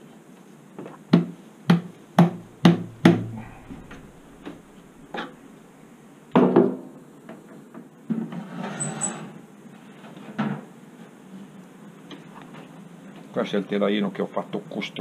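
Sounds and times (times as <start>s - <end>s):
wooden boards knocking: 2.2s - 5.4s.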